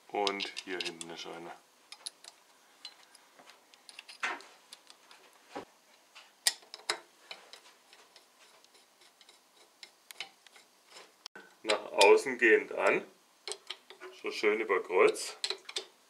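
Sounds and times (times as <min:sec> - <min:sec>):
small metal clicks: 0:00.2 - 0:01.2, 0:01.9 - 0:05.2, 0:06.4 - 0:10.7, 0:13.4 - 0:14.1, 0:15.1 - 0:16.0
screwdriver light scrapes: 0:07.3 - 0:11.2.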